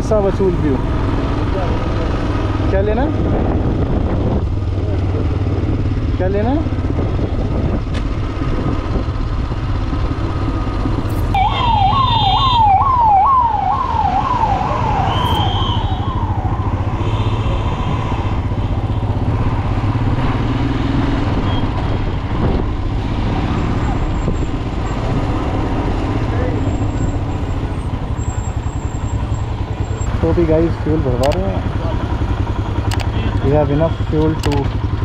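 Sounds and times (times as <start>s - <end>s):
engine and road rumble: 0.0s - 35.0s
siren yelping: 11.3s - 18.0s.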